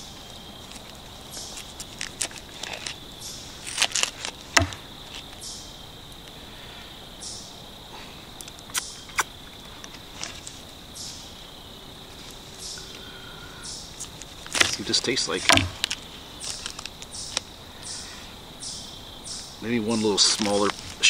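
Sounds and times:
crickets trilling: 0:00.0 - 0:21.0
knife knocking on board: 0:04.6 - 0:04.8, 0:15.5 - 0:15.8.

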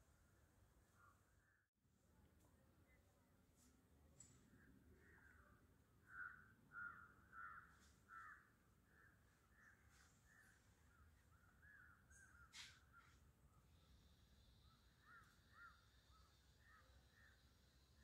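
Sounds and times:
crow cawing: 0:06.0 - 0:09.6, 0:15.0 - 0:15.9.

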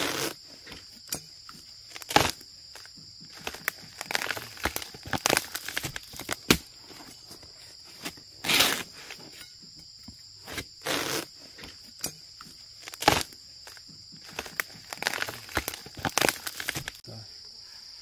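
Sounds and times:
dry sheath crackling and tearing: 0:00.0 - 0:09.5, 0:10.4 - 0:17.0
insects buzzing: 0:00.0 - 0:18.0
dry leaves rustling: 0:01.8 - 0:09.4, 0:12.8 - 0:17.0.

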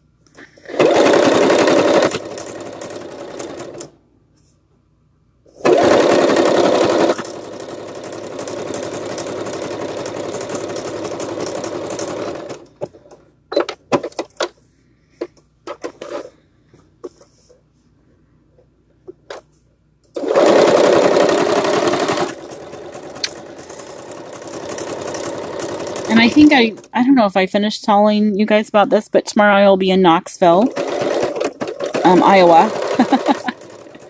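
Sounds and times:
sewing machine stitching: 0:00.6 - 0:03.9, 0:05.5 - 0:14.2, 0:20.1 - 0:27.0, 0:30.5 - 0:34.0.

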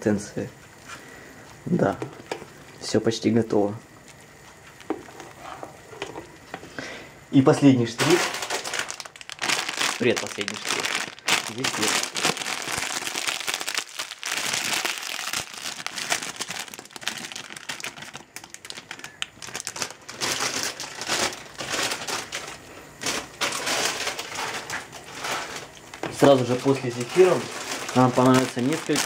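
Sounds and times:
plastic bag crinkling: 0:07.8 - 0:29.0.

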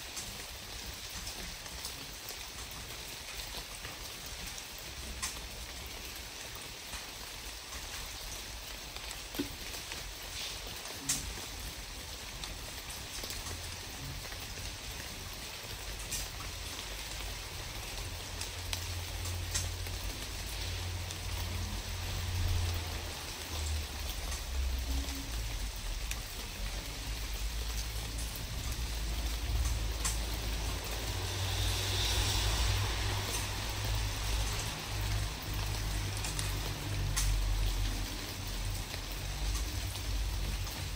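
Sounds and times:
even hiss: 0:29.5 - 0:38.1.

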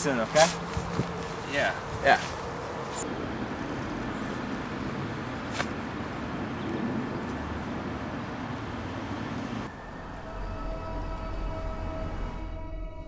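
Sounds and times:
eerie music drone: 0:09.7 - 0:13.0.

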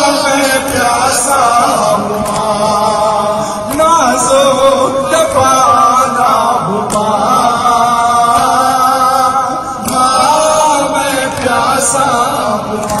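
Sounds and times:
man chanting a mourning lament: 0:00.0 - 0:13.0.

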